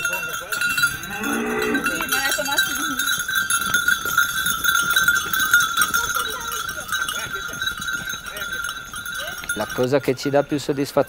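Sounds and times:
goat bells jingling: 0:00.0 - 0:11.0.

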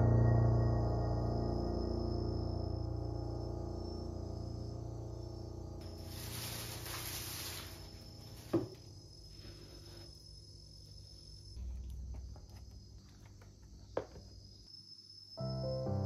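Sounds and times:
plastic bag rustling: 0:05.8 - 0:08.8.

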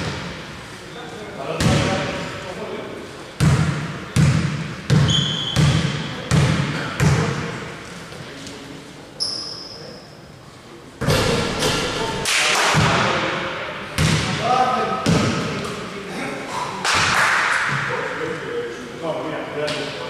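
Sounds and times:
basketball bouncing on court: 0:03.4 - 0:07.5, 0:14.0 - 0:14.4
short high squeaks: 0:05.1 - 0:05.6, 0:09.2 - 0:10.2.

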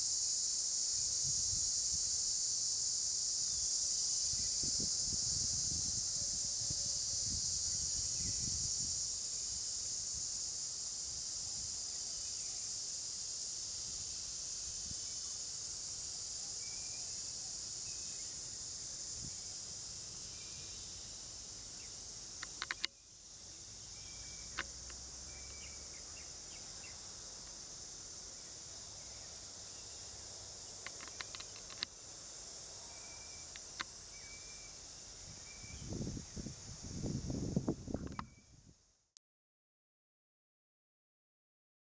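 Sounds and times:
high-pitched insect chorus: 0:00.0 - 0:39.0
sharp clicks: 0:22.4 - 0:22.9, 0:30.8 - 0:31.9.

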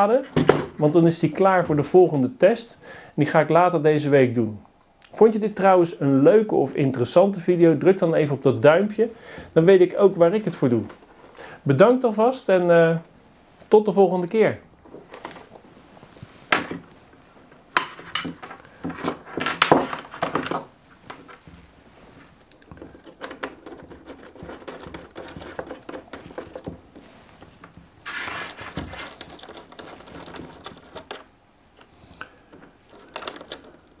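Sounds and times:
rustling and small knocks: 0:14.8 - 0:34.0.

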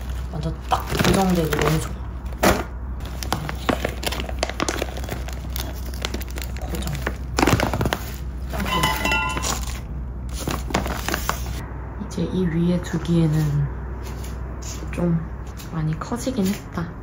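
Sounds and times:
small hard objects clinking: 0:08.5 - 0:09.8.

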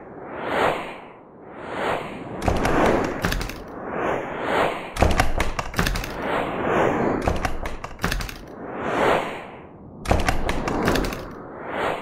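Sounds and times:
whooshes: 0:00.0 - 0:12.0
rapid clicks and cracks: 0:02.4 - 0:03.7, 0:05.0 - 0:06.3, 0:07.2 - 0:08.5, 0:10.1 - 0:11.4.

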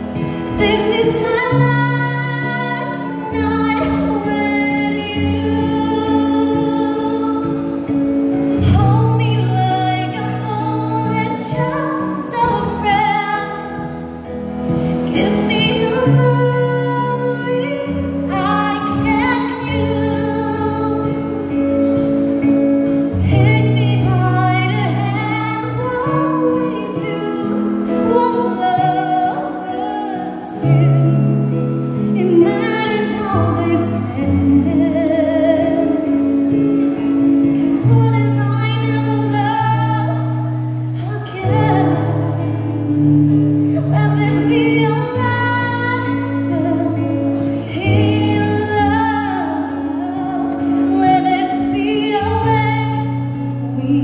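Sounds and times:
woman singing a slow ballad: 0:00.0 - 0:54.0.

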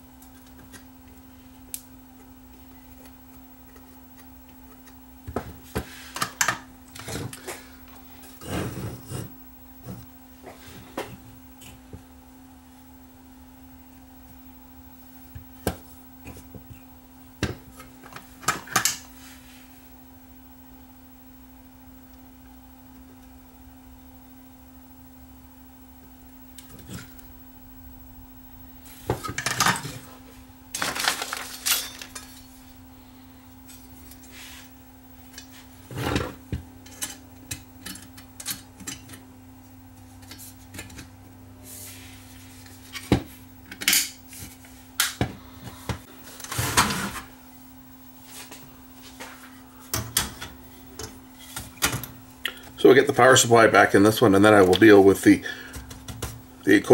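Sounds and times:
steady low hum: 0:00.0 - 0:56.9
tools and parts clinking: 0:30.7 - 0:32.6.

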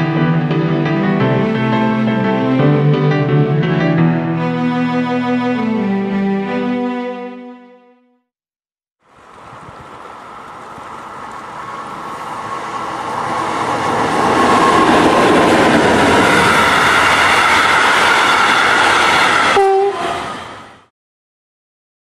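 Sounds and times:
train wheels on rails: 0:09.1 - 0:20.9.

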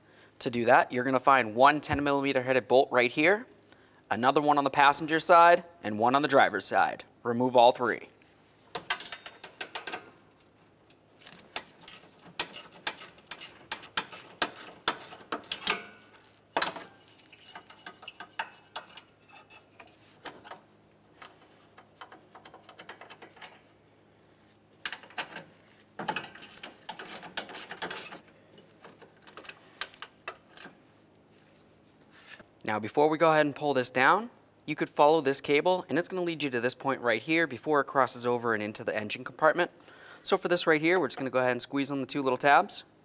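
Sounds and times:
hand ratchet clicking: 0:11.3 - 0:19.1.

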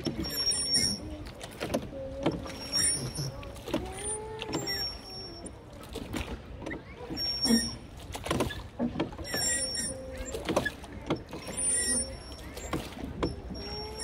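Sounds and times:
oars knocking in rowlocks: 0:00.0 - 0:14.0.

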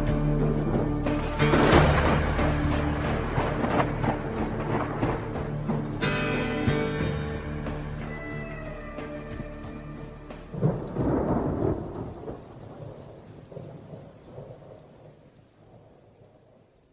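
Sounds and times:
song playing: 0:00.0 - 0:11.5
thunder clap rumbling: 0:00.0 - 0:16.8
rain falling: 0:00.0 - 0:16.9.

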